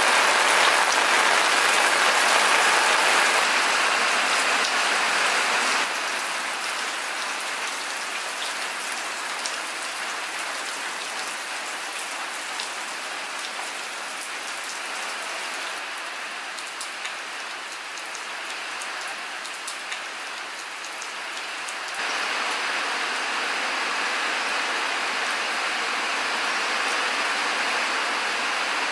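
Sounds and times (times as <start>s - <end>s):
rain pattering on wet ground: 0.0s - 28.9s.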